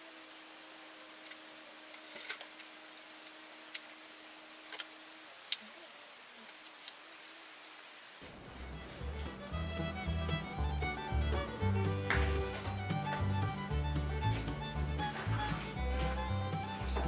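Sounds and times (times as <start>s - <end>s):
hands clicking and tapping packaging: 11.9s - 13.3s.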